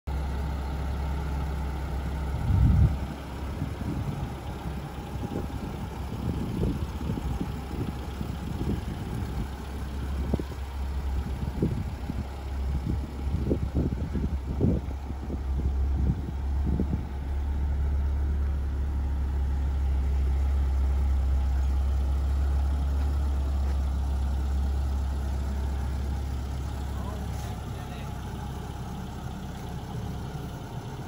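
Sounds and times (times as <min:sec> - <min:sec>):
car engine idling: 0:00.1 - 0:31.0
irregular low thumps: 0:02.3 - 0:20.5.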